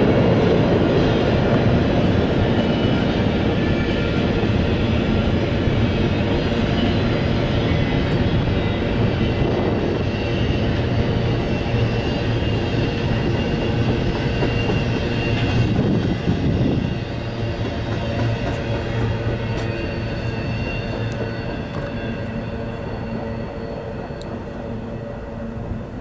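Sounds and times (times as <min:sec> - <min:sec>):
train wheels rumbling on rails: 0:00.0 - 0:26.0
faint high-pitched squeals: 0:00.4 - 0:26.0.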